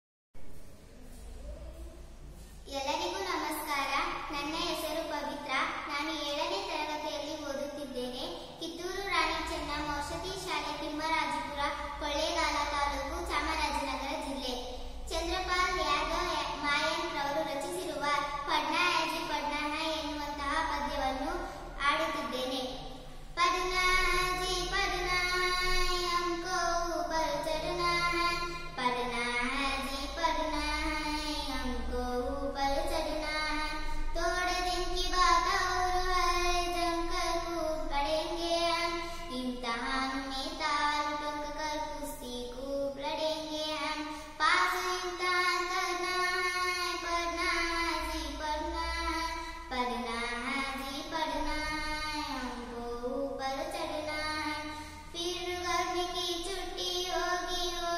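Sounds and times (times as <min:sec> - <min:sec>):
girl singing: 0:02.6 - 0:57.9.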